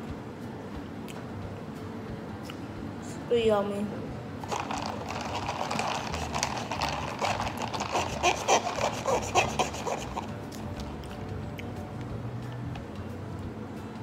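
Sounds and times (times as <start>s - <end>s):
plastic straw squeaking in lid: 4.5s - 10.4s.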